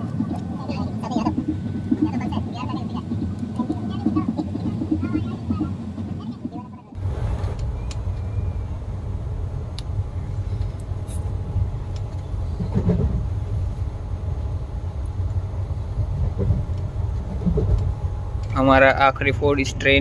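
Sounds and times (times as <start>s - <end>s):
train rumble inside carriage: 0.0s - 20.0s
faint clicks: 11.9s - 13.2s.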